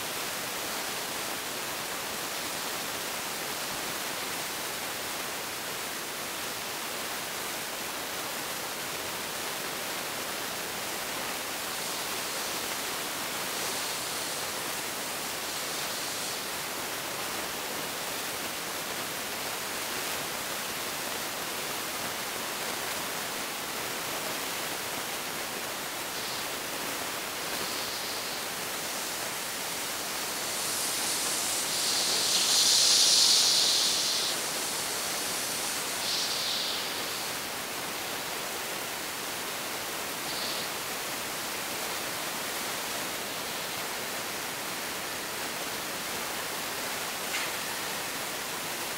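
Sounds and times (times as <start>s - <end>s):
bursts of escaping steam: 8.6s - 22.4s, 23.0s - 48.8s
steam locomotive hissing: 10.1s - 21.4s, 24.7s - 45.0s.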